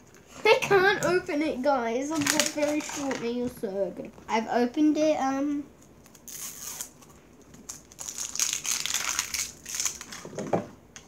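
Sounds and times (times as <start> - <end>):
plastic wrapping crinkling: 2.1 - 3.4, 6.0 - 10.5.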